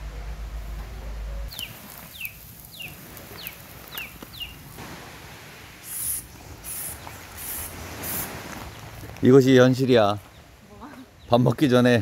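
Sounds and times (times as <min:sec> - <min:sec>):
aerosol spray hissing: 0:05.8 - 0:08.4.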